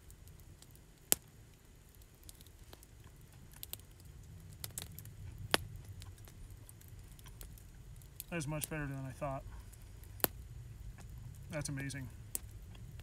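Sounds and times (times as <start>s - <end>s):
campfire crackling: 0.0s - 13.0s
low steady rumble: 0.0s - 13.0s.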